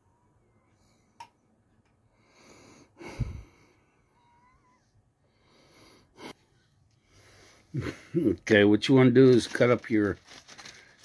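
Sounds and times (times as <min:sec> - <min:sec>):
soft breathing: 0:00.0 - 0:07.8.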